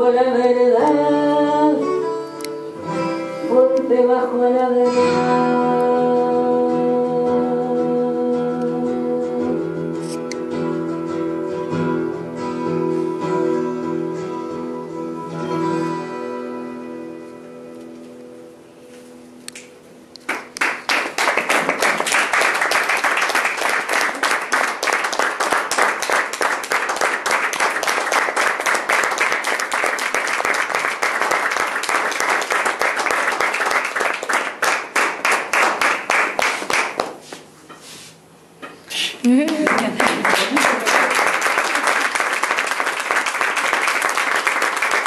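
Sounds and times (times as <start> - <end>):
audience applauding: 20.3 - 37.2, 39.4 - 45.0.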